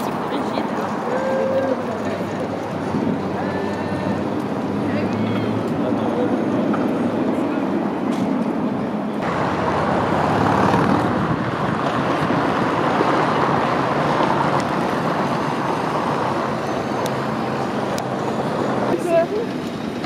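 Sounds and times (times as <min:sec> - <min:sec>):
city street traffic: 0:00.0 - 0:20.0.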